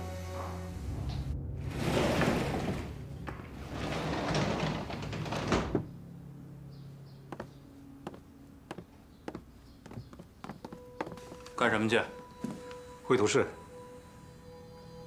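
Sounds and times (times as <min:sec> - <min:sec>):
wooden sliding door rumbling shut: 0:00.4 - 0:06.0
footsteps on wooden floorboards: 0:07.3 - 0:11.6.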